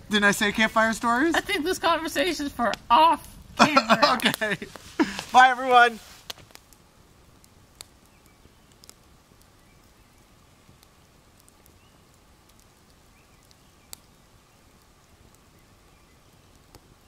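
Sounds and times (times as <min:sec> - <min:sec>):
faint campfire crackling: 0:00.0 - 0:17.0.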